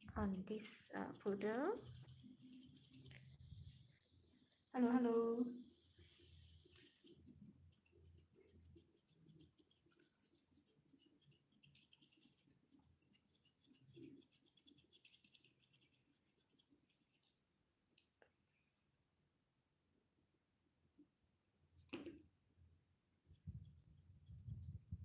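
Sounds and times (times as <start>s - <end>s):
scissors snipping fur: 0.0s - 3.2s, 4.8s - 16.7s.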